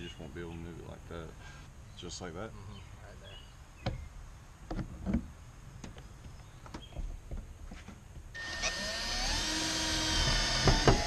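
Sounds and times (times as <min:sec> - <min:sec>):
cordless drill motor whine: 0:08.4 - 0:11.0.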